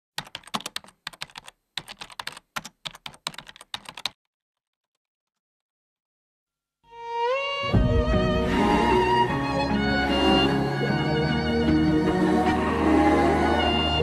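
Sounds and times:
keyboard typing clicks: 0.2s - 5.0s.

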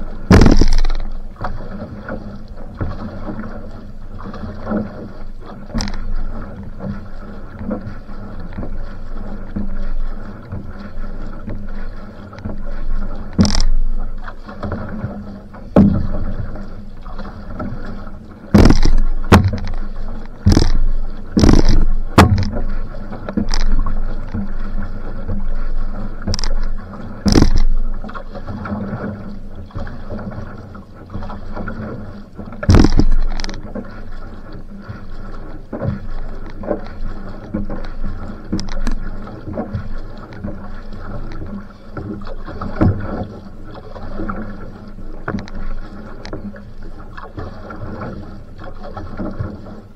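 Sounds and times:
loud splashes or knocks: 0.0s - 2.2s, 5.7s - 7.0s, 13.3s - 25.4s, 26.3s - 29.1s, 32.6s - 33.9s
paddle pulling through water: 0.0s - 49.9s
water rushing along hull: 0.0s - 49.9s.

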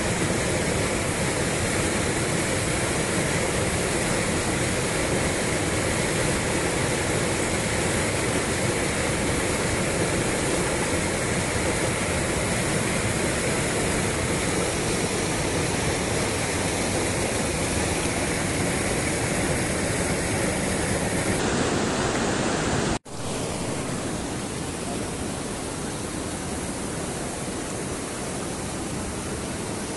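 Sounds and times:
stream rushing over boulders: 0.0s - 29.9s.

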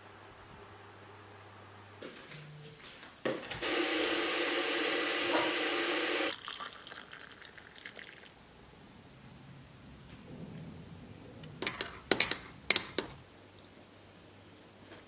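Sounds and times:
water pouring into vessel: 6.3s - 8.4s.

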